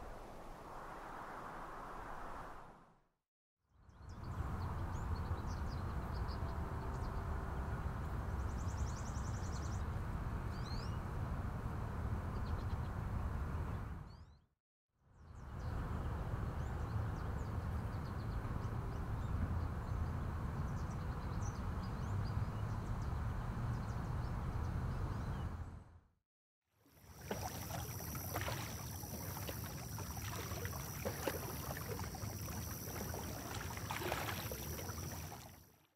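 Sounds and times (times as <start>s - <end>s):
low rumbling noise: 0.0s - 3.0s.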